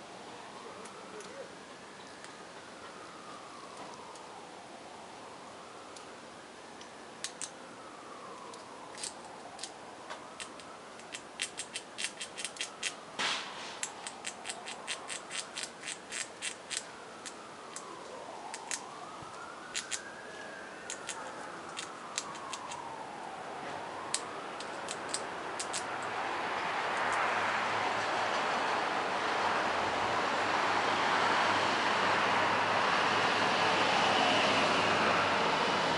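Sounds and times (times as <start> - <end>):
squirrel chewing fruit: 6.8 - 13.1, 13.7 - 27.4.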